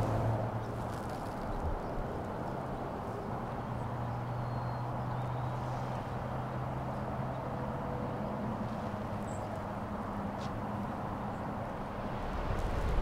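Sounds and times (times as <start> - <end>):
low outdoor rumble: 8.2 - 13.0.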